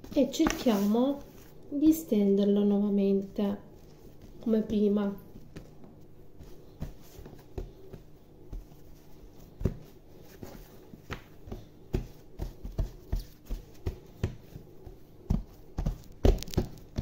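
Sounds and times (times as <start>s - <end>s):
dough thumping on worktop: 11.0s - 17.0s.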